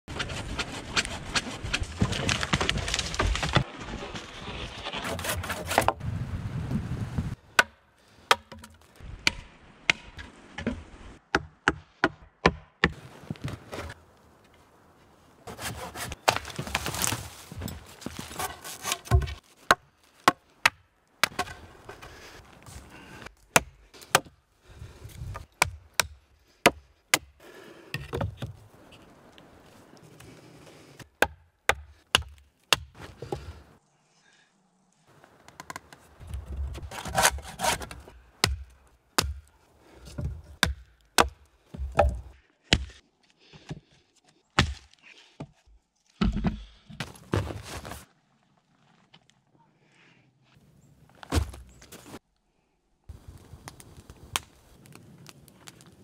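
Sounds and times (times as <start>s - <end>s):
wood scraping and handling: 0.1s - 6.0s, 15.4s - 20.3s, 21.2s - 23.4s, 35.4s - 38.2s, 39.8s - 40.6s
wood chopping: 7.5s - 13.0s, 18.4s - 22.0s, 23.5s - 24.4s, 25.2s - 27.3s, 31.1s - 33.5s, 35.5s - 43.0s, 44.6s - 45.5s, 51.3s - 51.7s.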